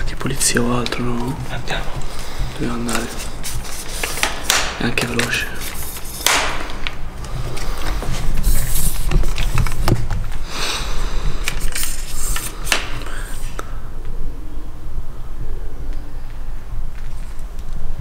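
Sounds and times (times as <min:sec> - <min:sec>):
steady low rumble: 0:00.0 - 0:03.9, 0:13.6 - 0:18.0
rustling and scraping: 0:00.0 - 0:10.4, 0:16.3 - 0:17.8.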